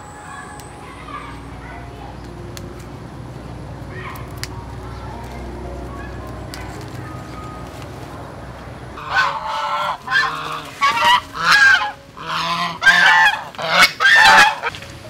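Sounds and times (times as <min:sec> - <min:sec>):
goose honking: 0:09.0 - 0:14.7.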